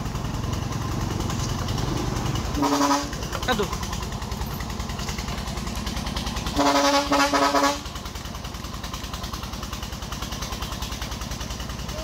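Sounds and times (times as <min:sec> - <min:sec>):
diesel engine running: 0:00.0 - 0:12.0
vehicle horn honks: 0:02.6 - 0:03.2, 0:06.6 - 0:07.9.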